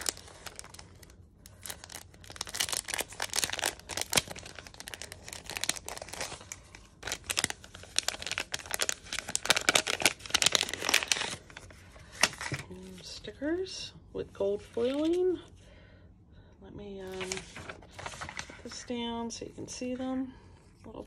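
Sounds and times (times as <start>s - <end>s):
cellophane and paper crinkling: 0.0s - 13.4s, 14.5s - 15.5s, 17.0s - 19.1s.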